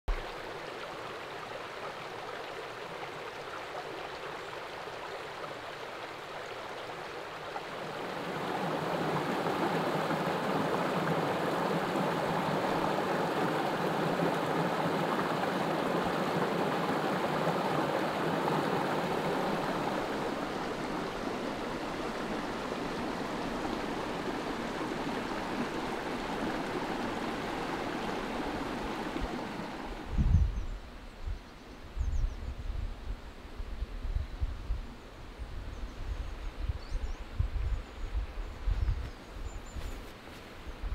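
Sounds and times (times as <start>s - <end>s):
stream running over stones: 0.1s - 30.1s
water pouring through cascade: 7.0s - 30.0s.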